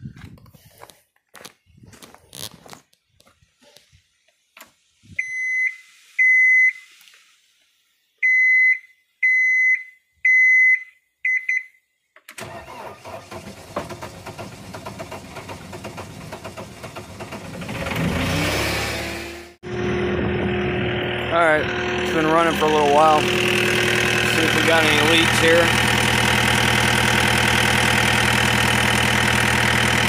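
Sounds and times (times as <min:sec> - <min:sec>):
instrument panel warning beeps: 0:08.2 - 0:11.7
diesel engine starting and running: 0:12.4 - 0:30.0.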